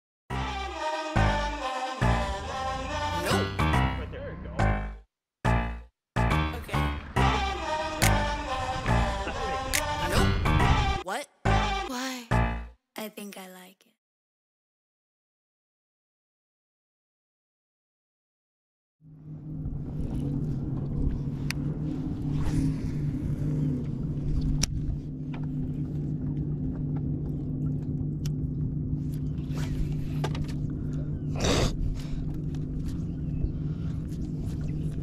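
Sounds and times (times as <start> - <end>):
boat motor humming: 0.3 - 12.7, 19.0 - 35.0
wind rumbling on microphone: 19.2 - 28.0.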